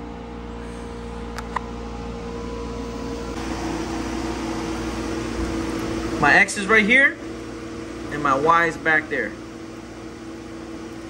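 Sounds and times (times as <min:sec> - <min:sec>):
mechanical hum with held tones: 0:00.0 - 0:11.0.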